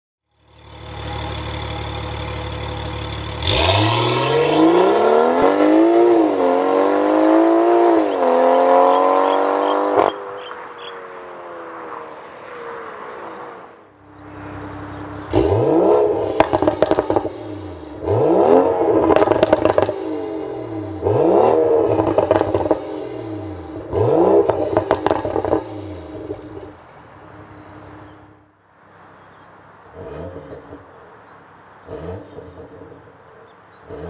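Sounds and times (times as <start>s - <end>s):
car engine revving: 0.4s - 28.4s, 29.7s - 34.0s
exhaust crackles: 0.5s - 28.0s.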